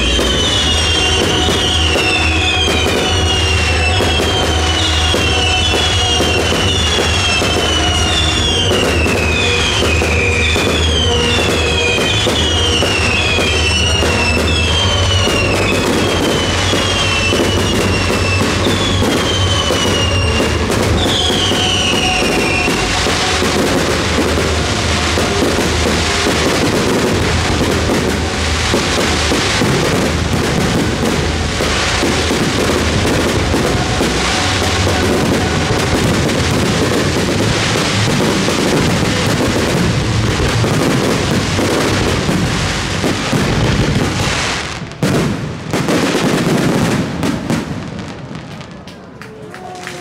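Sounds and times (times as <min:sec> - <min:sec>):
fireworks crackling and exploding: 0:00.0 - 0:50.0
show music: 0:00.0 - 0:50.0.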